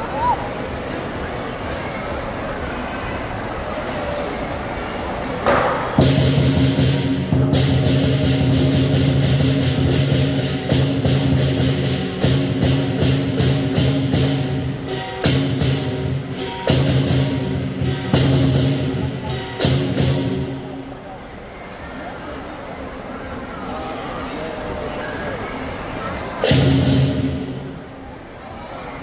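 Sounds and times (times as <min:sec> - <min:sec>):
large drum beating: 0:05.4 - 0:20.9, 0:26.4 - 0:28.0
cymbals clashing: 0:05.6 - 0:20.8, 0:26.4 - 0:28.0.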